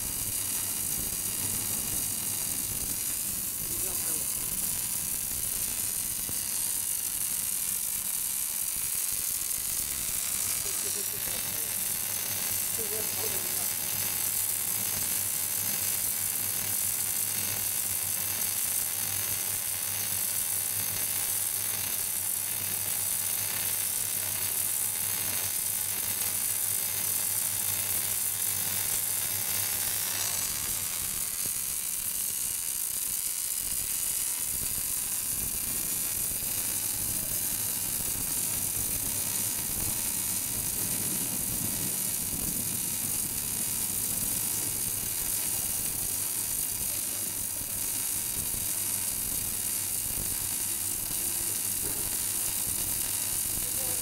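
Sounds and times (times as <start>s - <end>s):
welding arc: 0.0s - 54.0s.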